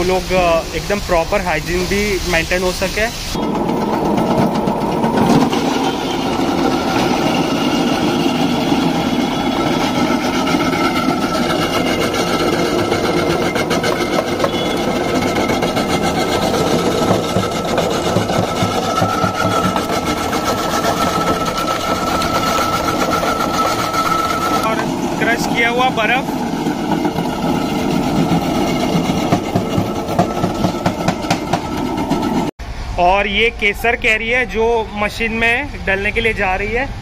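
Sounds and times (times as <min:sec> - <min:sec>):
ice crusher grinding ice: 0:03.4 - 0:32.5.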